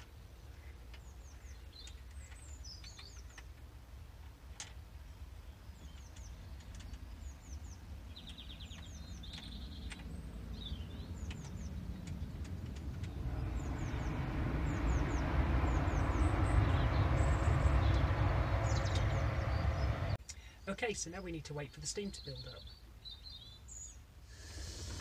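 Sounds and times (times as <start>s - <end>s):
small birds chirping: 0.0s - 3.7s, 4.8s - 25.0s
low rumbling noise: 9.2s - 20.2s.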